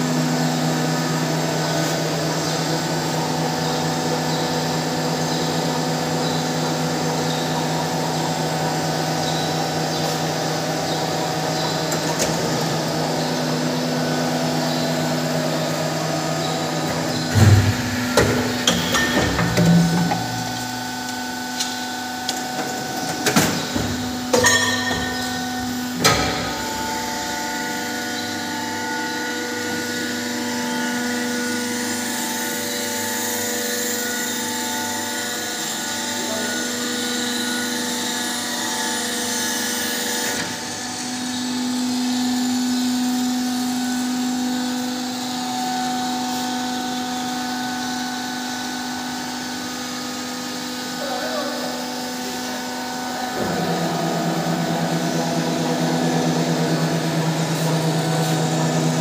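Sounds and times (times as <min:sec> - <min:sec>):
injection moulding machine hum: 0:00.0 - 0:59.0
sharp metallic knocks: 0:17.3 - 0:20.6, 0:23.4 - 0:25.4.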